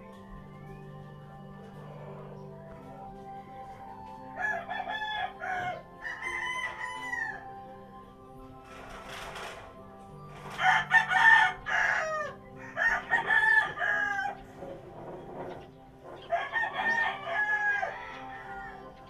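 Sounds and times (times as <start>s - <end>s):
soft background music: 0.0s - 19.0s
rooster crowing: 1.5s - 7.8s, 10.4s - 19.0s.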